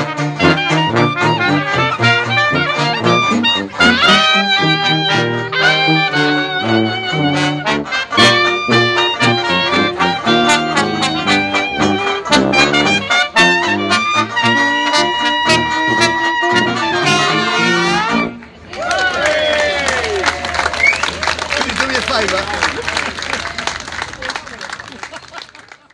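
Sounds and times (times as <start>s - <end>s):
jazz street band playing: 0.0s - 25.9s.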